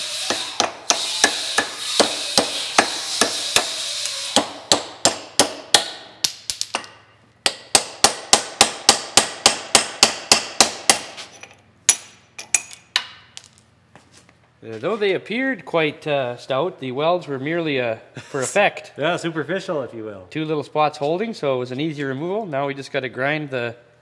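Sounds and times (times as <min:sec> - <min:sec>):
hammer striking steel: 0:00.3 - 0:11.2.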